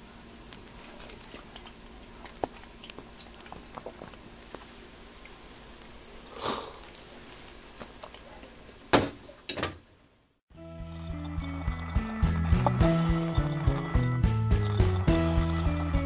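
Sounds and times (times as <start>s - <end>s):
quiet eating sounds: 0.4s - 8.9s
breathy sip: 6.2s - 7.2s.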